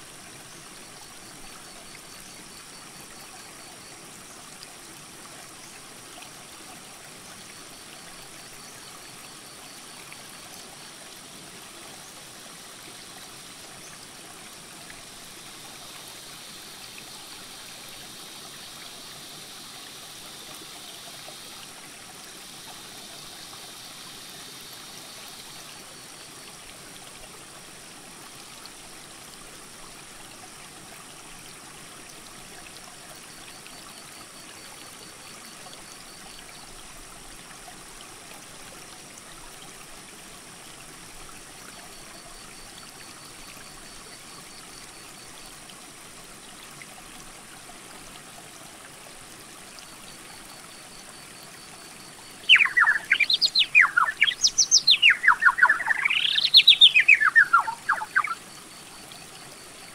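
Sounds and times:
creek rushing: 45.6 - 58.8
whistled bird song: 52.4 - 58.4.

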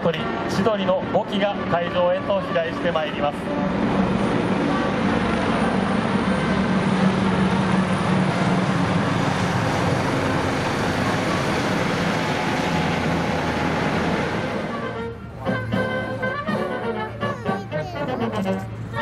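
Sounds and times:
helicopters flying overhead: 0.0 - 19.0.

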